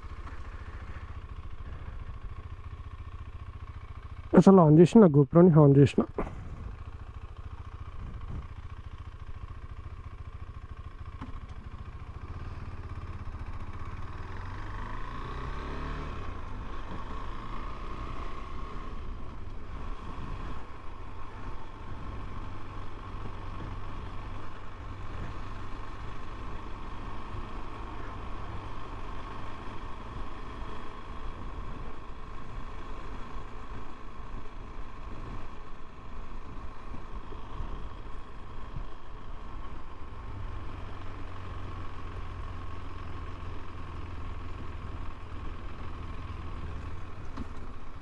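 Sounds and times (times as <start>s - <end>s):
motorcycle engine running: 0.0s - 48.0s.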